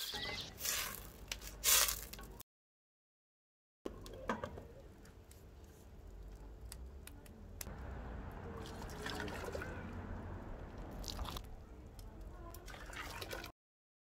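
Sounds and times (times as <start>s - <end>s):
water pouring into metal saucepan: 8.6s - 9.8s, 12.5s - 13.5s.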